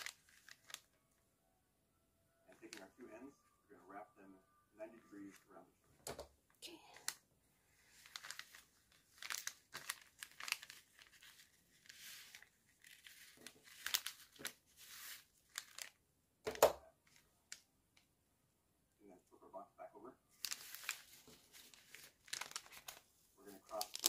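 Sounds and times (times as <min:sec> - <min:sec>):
paper rustling and crinkling: 0:00.0 - 0:00.9, 0:07.7 - 0:16.0, 0:20.3 - 0:24.0
twine scraping across paper: 0:11.2 - 0:15.9.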